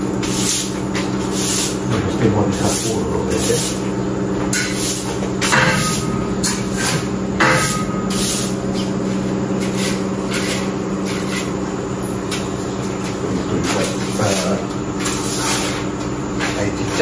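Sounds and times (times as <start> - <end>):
motor hum: 0.0 - 17.0
brush scraping: 0.2 - 1.8, 2.5 - 3.9, 5.8 - 11.6, 13.6 - 15.9.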